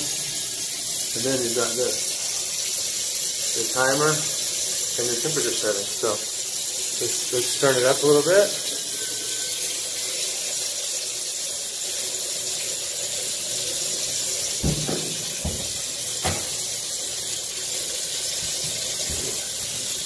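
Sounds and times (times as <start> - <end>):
shower water streaming: 0.0 - 20.0
soft knocks: 14.6 - 16.6.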